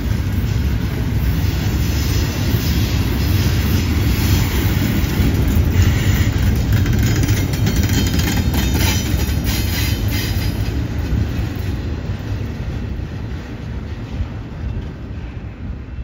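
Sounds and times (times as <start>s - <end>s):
train cars rolling on rails: 0.0s - 16.0s
wheels clicking: 4.8s - 9.7s.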